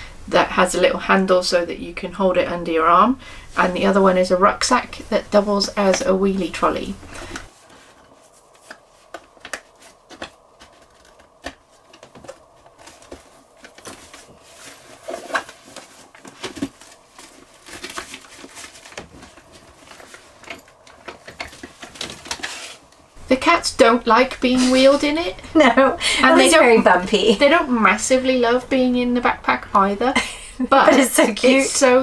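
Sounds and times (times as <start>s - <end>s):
fabric rustling: 2.9s - 29.0s.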